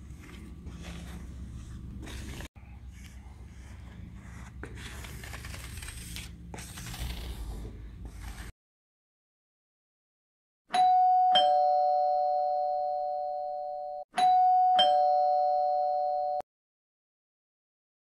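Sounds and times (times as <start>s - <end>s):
two-note doorbell chime: 10.7s - 16.4s.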